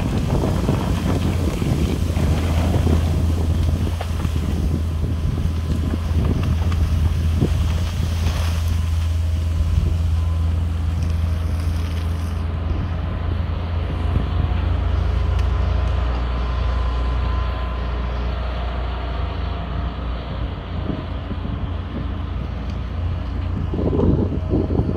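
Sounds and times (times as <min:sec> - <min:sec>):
excavator diesel engine droning: 0:00.0 - 0:24.9
faint hydraulic whine: 0:08.3 - 0:24.9.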